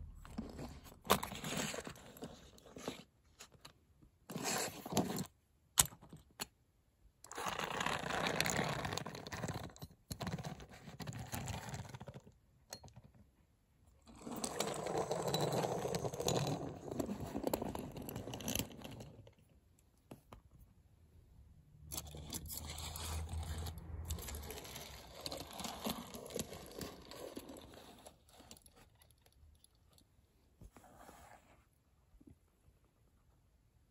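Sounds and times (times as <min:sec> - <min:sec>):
toy wheels rolling on wooden floor: 0:14.1 - 0:19.4, 0:21.9 - 0:29.2.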